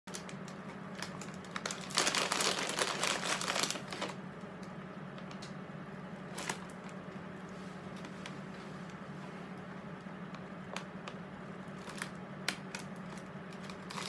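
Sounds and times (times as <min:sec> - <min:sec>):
plastic snack bag crinkling: 0:00.1 - 0:04.2, 0:06.2 - 0:07.0, 0:10.4 - 0:14.0
pretzel crunch: 0:00.1 - 0:05.4, 0:06.2 - 0:14.0.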